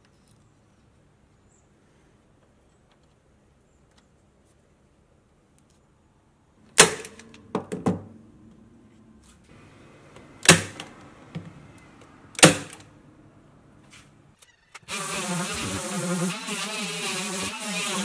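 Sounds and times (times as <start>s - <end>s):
staple gun shots: 6.7s - 7.4s, 10.4s - 10.9s, 12.4s - 12.9s.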